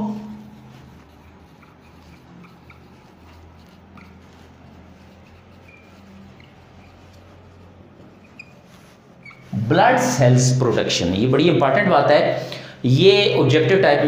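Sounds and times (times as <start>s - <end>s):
marker scratching on whiteboard: 0.0s - 10.2s
low room hum: 0.0s - 13.5s.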